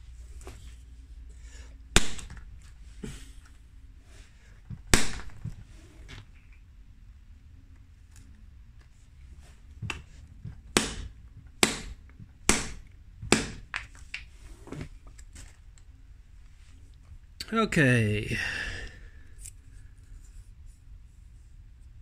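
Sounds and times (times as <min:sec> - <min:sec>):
sledgehammer strikes: 0:02.0 - 0:02.4, 0:10.7 - 0:13.7.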